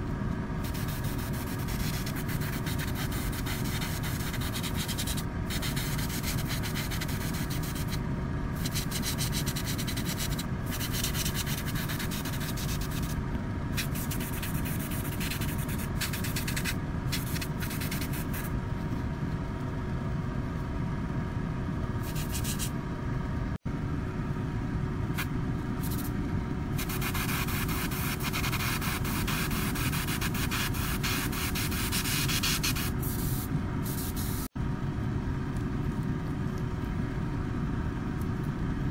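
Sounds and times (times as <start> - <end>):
motor hum: 0.0 - 38.9
airbrush spraying hiss: 0.6 - 8.0, 13.8 - 18.5, 26.8 - 34.5.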